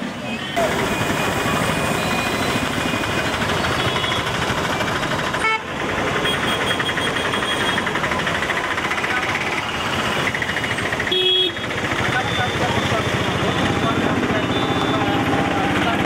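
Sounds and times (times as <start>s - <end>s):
horns honking: 0.0s - 4.4s, 5.3s - 8.0s, 9.8s - 16.0s
vehicle engines running: 0.0s - 16.0s.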